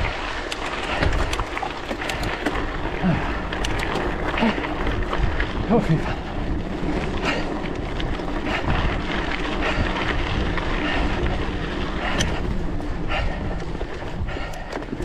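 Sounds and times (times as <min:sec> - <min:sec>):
bicycle clicks and rattles: 0:00.0 - 0:15.0
tyres on gravel road: 0:00.0 - 0:15.0
wind rushing over microphone: 0:00.0 - 0:15.0.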